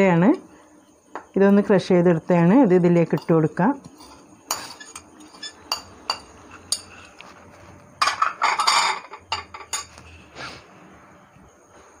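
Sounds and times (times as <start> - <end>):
metal spoon clinking on plate: 3.1 - 7.0, 8.0 - 10.0
clatter of utensils: 8.0 - 10.0.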